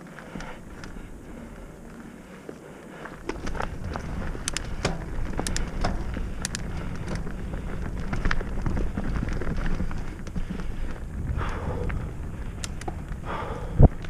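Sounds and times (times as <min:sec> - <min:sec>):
bike clicks and rattles: 0:00.0 - 0:14.0
tyres rumbling on dirt trail: 0:00.0 - 0:14.0
wind on microphone: 0:03.2 - 0:14.0.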